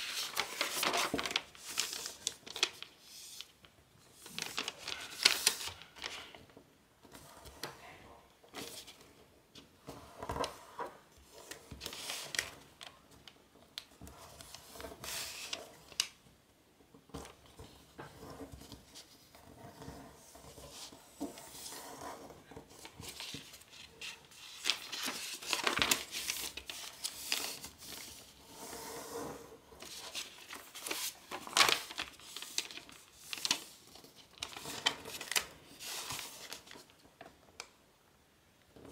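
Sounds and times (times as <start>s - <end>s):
sharp paper crackle: 0.0s - 3.5s, 4.2s - 6.4s, 22.8s - 28.2s, 29.8s - 37.0s
paper crinkling and rustling: 0.0s - 7.9s, 8.5s - 16.2s, 17.1s - 28.6s, 29.7s - 37.8s.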